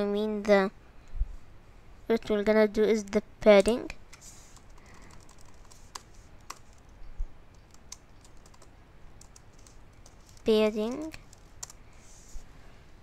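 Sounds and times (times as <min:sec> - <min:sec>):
faint keyboard keystrokes: 0:03.6 - 0:11.8.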